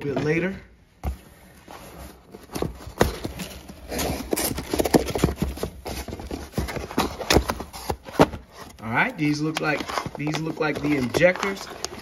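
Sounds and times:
cardboard box knocks and scrapes: 0:01.0 - 0:08.8.

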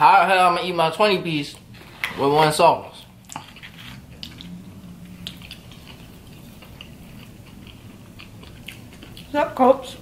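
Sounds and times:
chewing fried food: 0:03.0 - 0:10.0.

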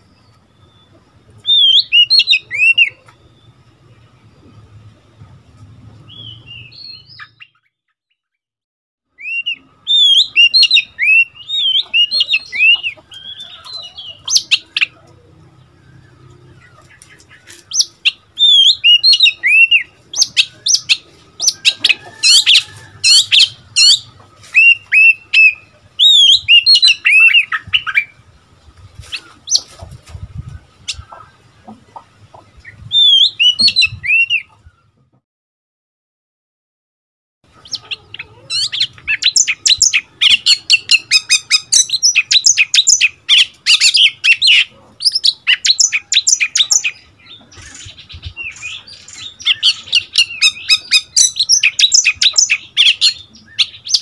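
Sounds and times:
bird singing whistled notes: 0:00.0 - 0:03.6, 0:06.0 - 0:07.8, 0:09.1 - 0:15.0, 0:17.6 - 0:28.2, 0:32.8 - 0:34.5, 0:38.5 - 0:54.0.

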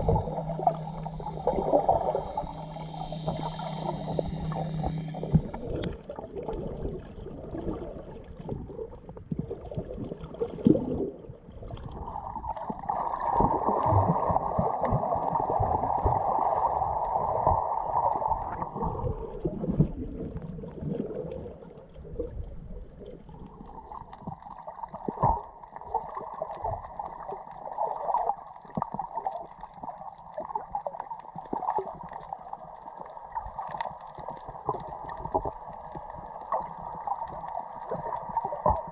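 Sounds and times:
mid-pitched drone: 0:00.0 - 0:06.9
underwater gurgling and sloshing: 0:00.0 - 0:38.9.

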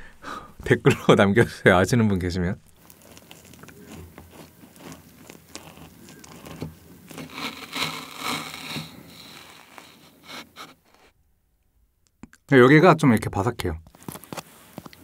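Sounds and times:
crisp meringue crackling: 0:02.6 - 0:11.1
knife and fork cutting: 0:03.1 - 0:10.8.

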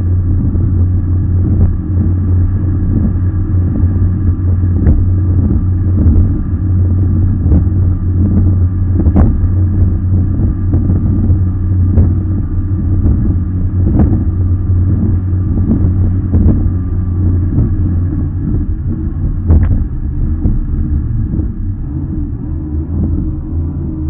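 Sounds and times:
hull knocking on waves: 0:00.0 - 0:22.2
boat engine rumbling: 0:00.0 - 0:24.0.

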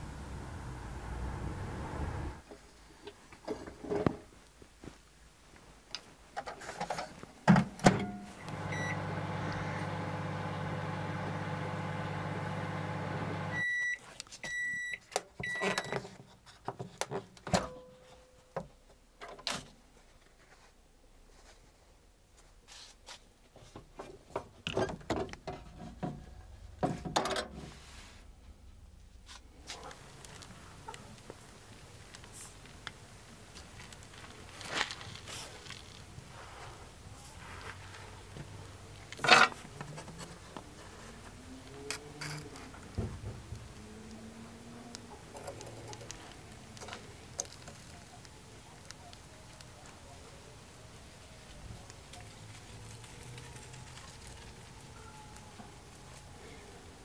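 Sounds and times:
microwave humming: 0:08.0 - 0:13.8
microwave beeps: 0:08.0 - 0:16.0.

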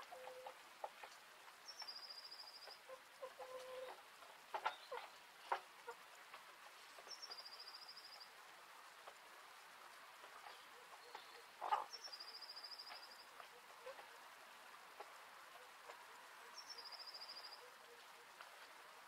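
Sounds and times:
hen call: 0:10.4 - 0:14.2
songbird trilling: 0:16.5 - 0:17.8.

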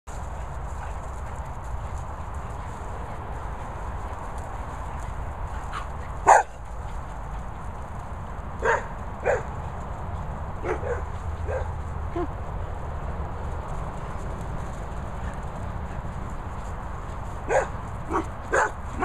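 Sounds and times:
dogs barking: 0:05.6 - 0:06.7, 0:08.6 - 0:09.6, 0:10.6 - 0:12.4, 0:17.4 - 0:19.0.

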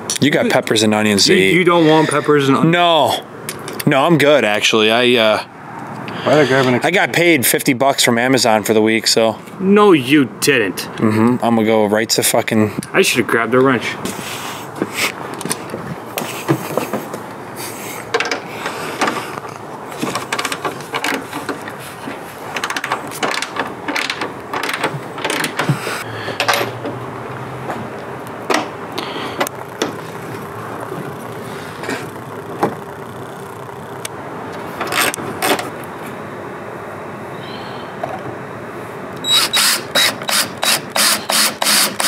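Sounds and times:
wrench clicking and clanking: 0:22.5 - 0:25.8, 0:39.3 - 0:42.0.

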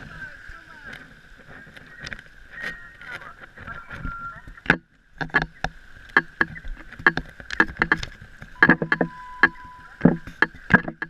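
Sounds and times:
faint steady tone: 0:01.5 - 0:11.0
sharp knocks: 0:04.6 - 0:11.0.

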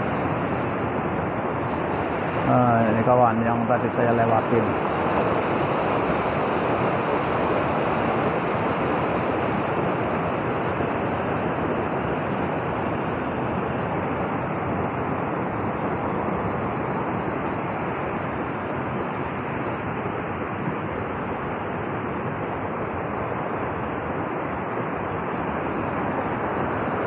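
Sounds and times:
river rushing over rocks: 0:00.0 - 0:27.0.

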